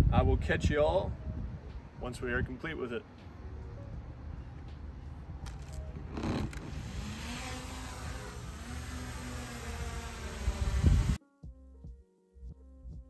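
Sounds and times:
drone propellers buzzing: 6.0s - 11.2s
background music: 11.2s - 13.0s.

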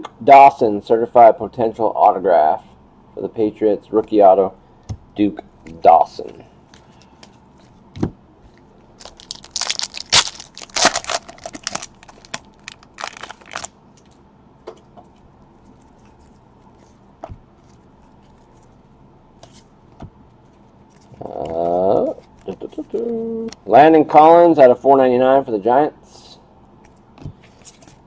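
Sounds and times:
foil wrapper crinkling and tearing: 9.0s - 13.7s.

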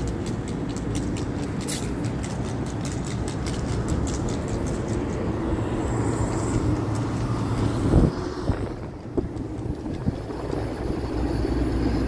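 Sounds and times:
rooftop unit humming: 0.0s - 12.0s.

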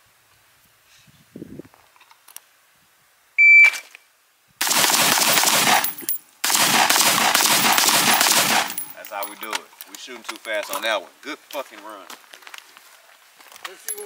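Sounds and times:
rapid gunfire: 4.6s - 8.9s.

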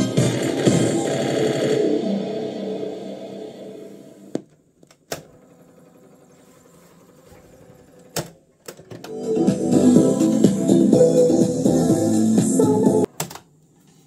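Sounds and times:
music from boombox: 0.0s - 4.3s, 9.0s - 13.1s.

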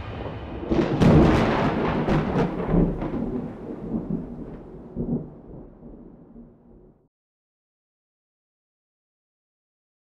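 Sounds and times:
deep rumble with crackling cracks: 0.0s - 7.1s.

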